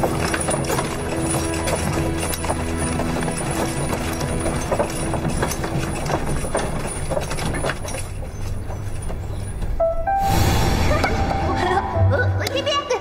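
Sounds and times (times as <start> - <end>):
horse hooves on stone: 0.0 - 9.8
soft background music: 0.0 - 13.0.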